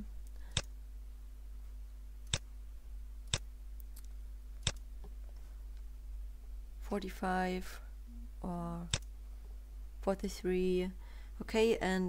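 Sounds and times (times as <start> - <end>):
steady low hum: 0.0 - 12.0
computer mouse clicks: 0.2 - 0.7, 2.2 - 2.5, 3.2 - 4.9.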